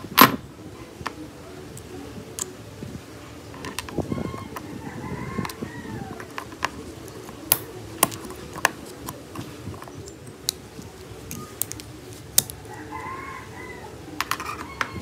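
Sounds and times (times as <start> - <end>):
metal tweezers clicking on gears: 7.5 - 8.4.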